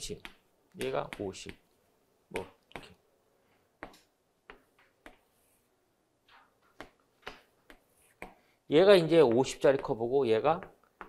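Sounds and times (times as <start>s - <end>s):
chalk tapping and scraping on chalkboard: 0.1s - 1.7s, 3.8s - 8.5s.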